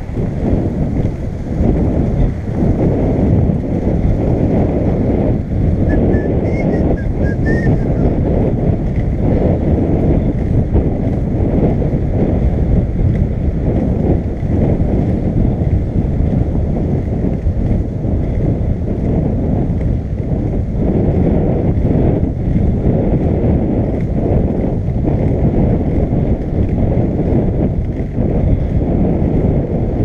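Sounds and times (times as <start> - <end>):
wind buffeting microphone: 0.0 - 30.0
skateboard wheels rolling on pavers: 7.8 - 30.0.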